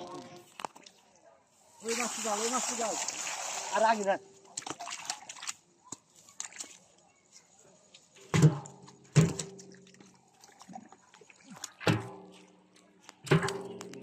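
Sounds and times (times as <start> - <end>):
fish banging inside metal drum: 8.3 - 9.8, 11.8 - 12.3, 13.3 - 14.0.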